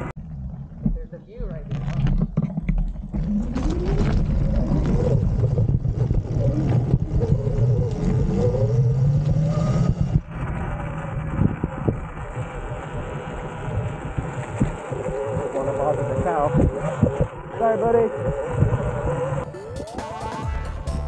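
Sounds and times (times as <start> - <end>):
wind rushing over microphone: 3.0 - 19.5
electric motor whine: 3.6 - 19.8.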